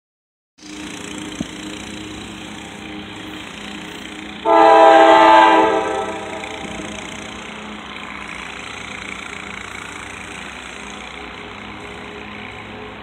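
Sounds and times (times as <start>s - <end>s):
locomotive air horn blast: 4.4s - 7.5s.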